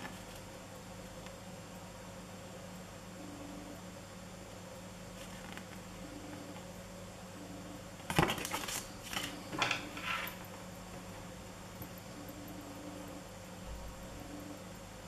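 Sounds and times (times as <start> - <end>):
objects clattering on tabletop: 8.1 - 10.4.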